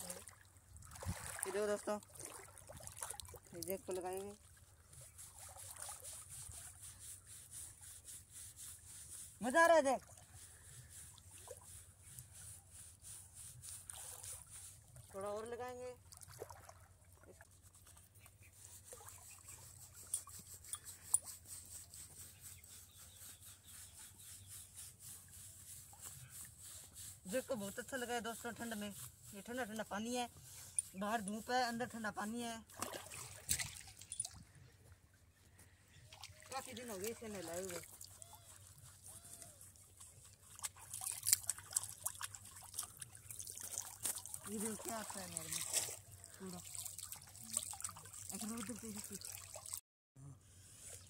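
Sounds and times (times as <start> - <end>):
water splashing and dripping: 0.0 - 6.3, 16.0 - 18.1, 32.7 - 34.4, 39.8 - 49.8
scrubbing of wet fur: 0.9 - 16.6, 17.3 - 34.3, 35.4 - 49.8.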